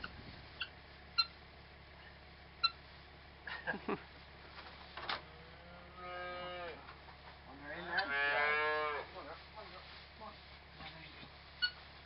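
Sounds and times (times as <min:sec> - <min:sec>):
cattle mooing: 0:05.2 - 0:06.8, 0:07.5 - 0:09.1.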